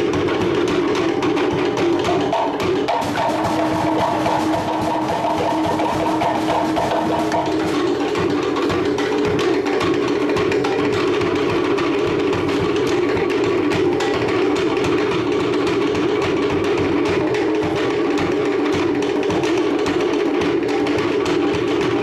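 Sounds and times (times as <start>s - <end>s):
wooden slit drums beaten rhythmically: 0.0s - 22.0s.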